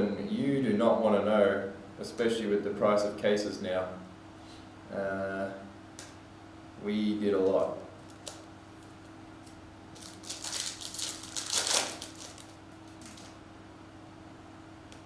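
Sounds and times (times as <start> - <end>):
faint electrical hum: 0.0 - 15.0
trading cards shuffling: 8.1 - 13.4.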